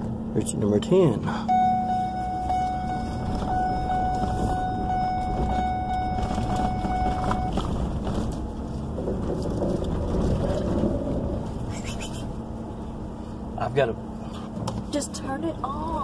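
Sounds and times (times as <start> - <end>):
vehicle rumbling on gravel: 0.0 - 16.0
high whine: 1.4 - 7.7.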